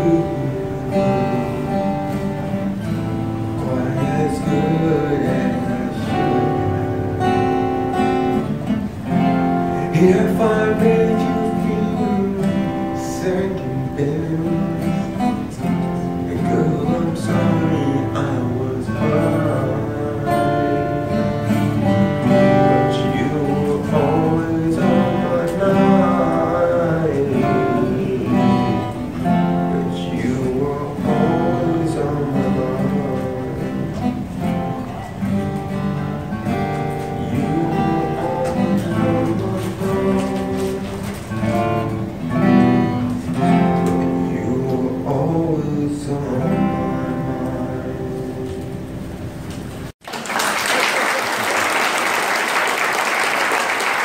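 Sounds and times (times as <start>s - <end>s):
acoustic guitar playing: 0.0s - 50.0s
audience applause: 50.0s - 54.0s.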